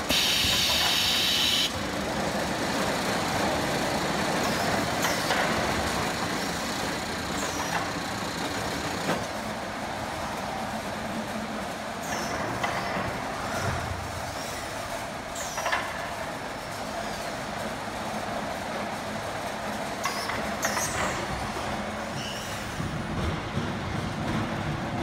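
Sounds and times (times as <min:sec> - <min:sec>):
steady machine noise: 0:00.0 - 0:09.1
sharp hissing squeaks: 0:22.2 - 0:22.7.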